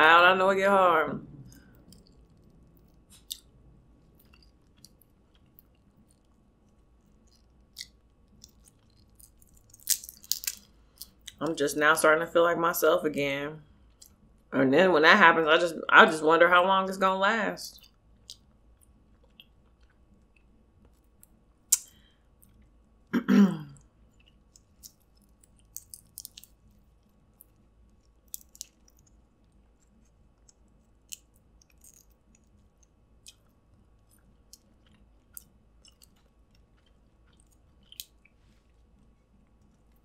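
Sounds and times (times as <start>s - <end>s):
quiet chewing: 1.4s - 11.4s, 17.8s - 23.1s, 23.7s - 40.0s
crab shell cracking: 7.2s - 11.4s, 24.4s - 26.8s, 27.4s - 32.6s, 37.3s - 38.3s.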